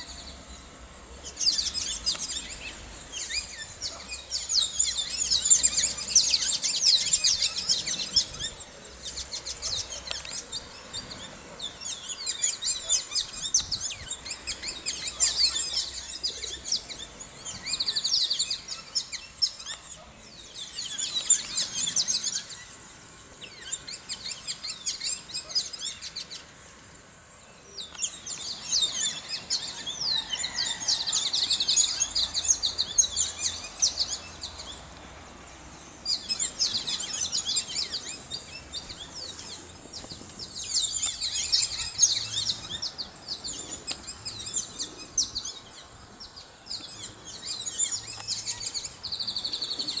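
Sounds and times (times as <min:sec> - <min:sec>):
many birds chirping: 0:00.0 - 0:50.0.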